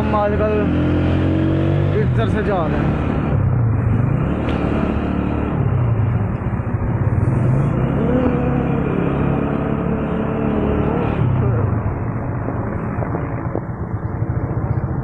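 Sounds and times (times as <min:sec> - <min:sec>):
road and wind noise: 0:00.0 - 0:15.0
motorcycle engine running: 0:05.7 - 0:15.0.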